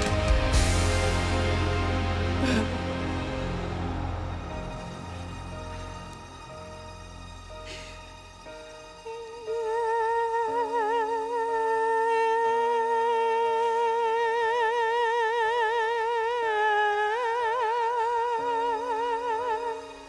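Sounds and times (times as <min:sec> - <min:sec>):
sustained backing chords: 0:00.0 - 0:11.5
wordless melody with vibrato: 0:00.0 - 0:20.0.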